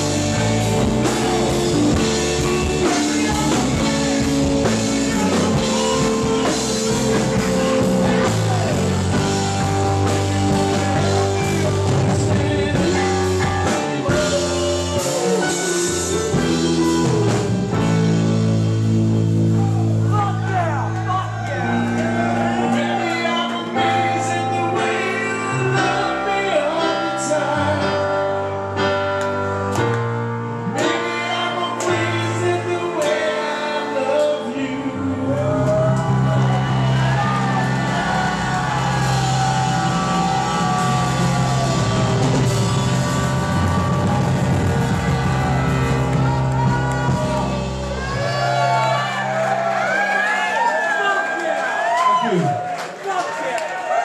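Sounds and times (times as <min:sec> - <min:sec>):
man singing: 0:00.0 - 0:09.1, 0:10.0 - 0:18.2, 0:21.6 - 0:28.5, 0:30.6 - 0:36.7
live rock band playing: 0:00.0 - 0:50.7.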